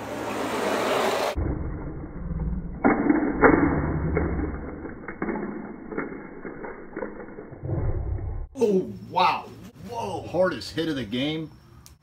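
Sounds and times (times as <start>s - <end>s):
toy trucks crashing: 2.9s - 7.5s.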